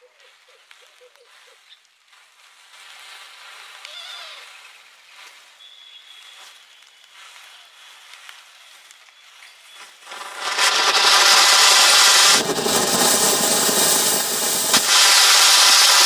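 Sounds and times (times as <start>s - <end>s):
burning matchsticks crackling: 10.0s - 16.0s
firework fountain hissing: 10.0s - 16.0s
sharp crack: 10.1s - 16.0s.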